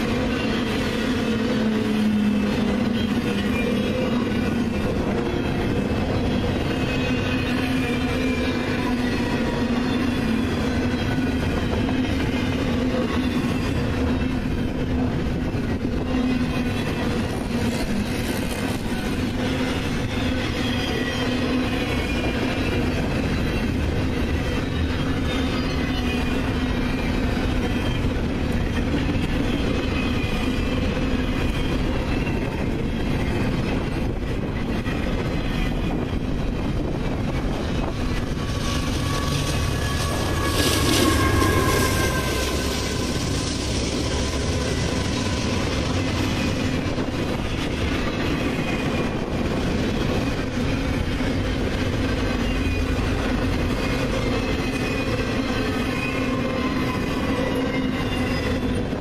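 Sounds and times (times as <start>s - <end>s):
freight train wheels rumbling: 0.0s - 59.0s
wheels squealing: 16.0s - 50.9s.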